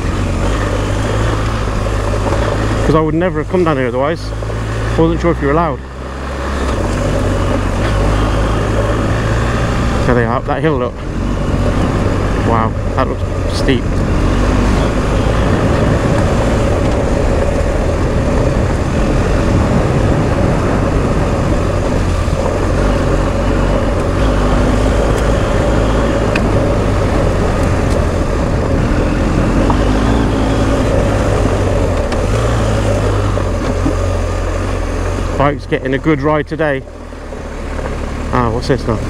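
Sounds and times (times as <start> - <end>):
motorcycle engine running: 0.0 - 39.0
wind rushing: 10.8 - 35.4.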